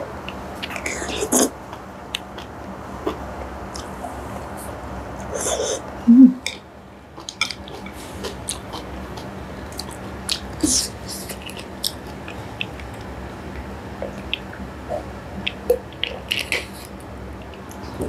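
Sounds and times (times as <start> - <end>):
person swallowing: 6.1 - 6.4
chewing noodles: 7.2 - 18.0.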